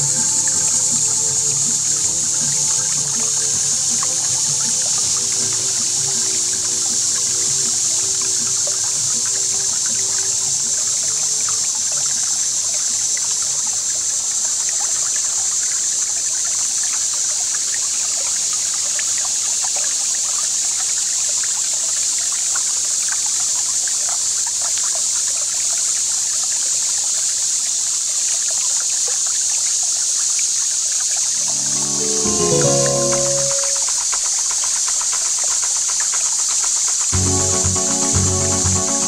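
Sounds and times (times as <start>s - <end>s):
steady high hiss: 31.3s - 34.1s.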